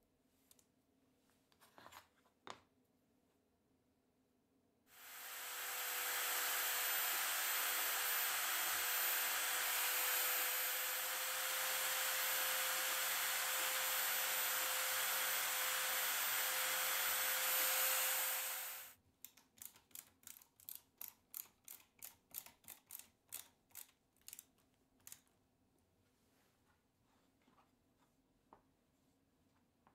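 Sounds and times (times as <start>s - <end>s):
drill press whining: 5.0s - 18.9s.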